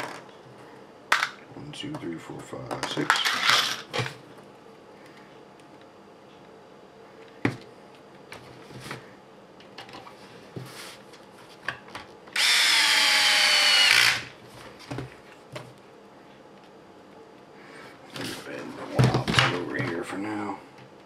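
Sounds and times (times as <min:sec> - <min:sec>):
electric screwdriver whine: 0:12.4 - 0:14.4.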